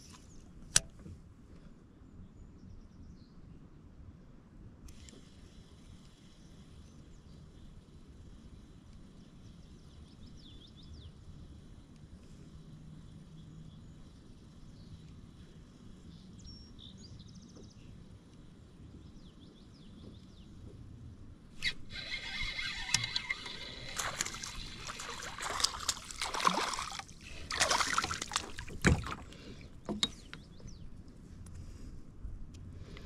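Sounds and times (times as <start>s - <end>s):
fish splashing in water: 22.2s - 29.6s.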